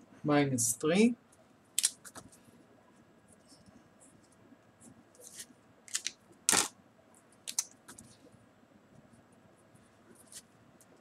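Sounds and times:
pen clicks: 1.8 - 2.2, 5.9 - 6.7, 7.5 - 8.0.

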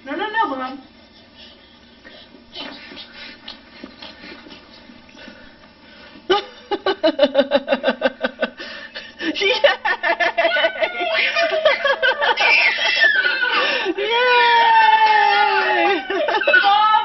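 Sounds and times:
person laughing: 6.3 - 8.6, 9.2 - 14.2.

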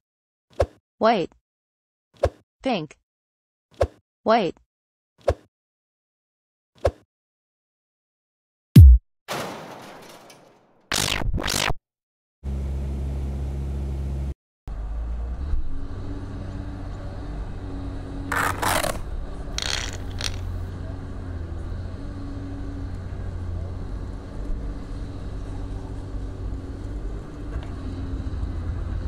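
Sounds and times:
plastic toy clicks: 19.6 - 20.5
toy engine-like hum: 19.6 - 20.7.

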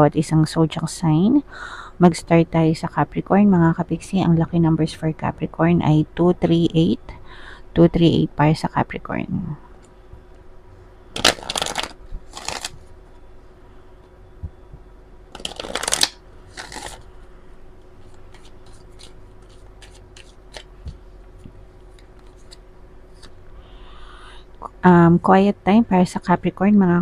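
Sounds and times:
cards being shuffled: 11.2 - 12.8, 15.3 - 17.0, 18.0 - 23.4
light clicks of cards fanned out: 18.0 - 23.4.

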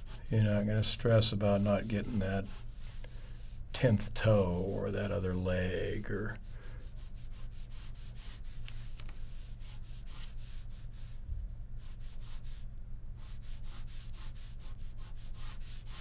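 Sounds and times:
low steady hum: 0.0 - 16.0
pen scratching on paper: 13.2 - 16.0.

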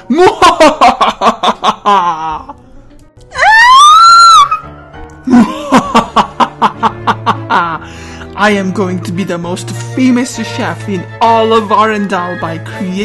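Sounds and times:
villain's cackle: 0.0 - 2.6, 5.3 - 7.8
high-pitched scream: 3.3 - 4.6.

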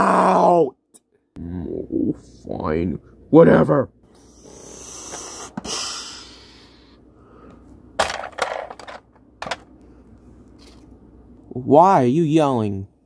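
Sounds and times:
toy ramp hiss: 4.4 - 6.2.

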